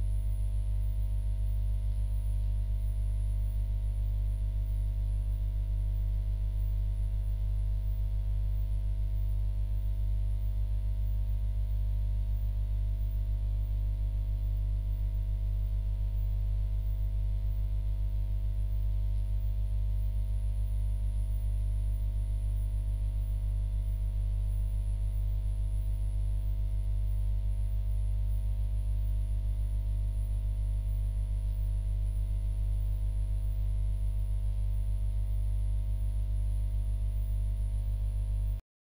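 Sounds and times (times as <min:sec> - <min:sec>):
faint high whine: 0:00.0 - 0:08.7
low electrical hum: 0:00.0 - 0:38.6.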